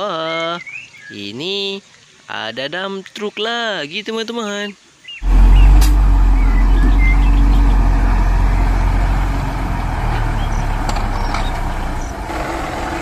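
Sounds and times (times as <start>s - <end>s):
diesel truck engine running: 5.2s - 13.0s.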